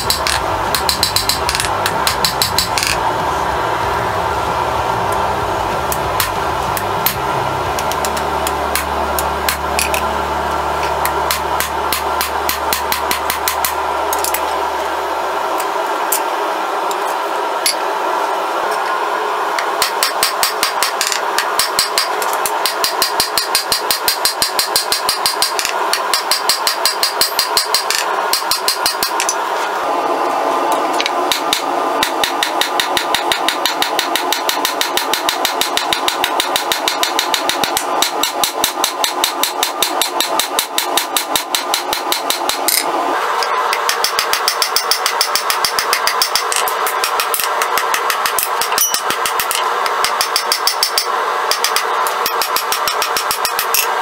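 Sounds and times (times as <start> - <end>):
hammer striking metal on anvil: 0.0 - 3.1, 5.1 - 14.5, 19.6 - 29.4, 31.0 - 42.9, 43.7 - 53.9
steady rushing noise: 0.0 - 19.8.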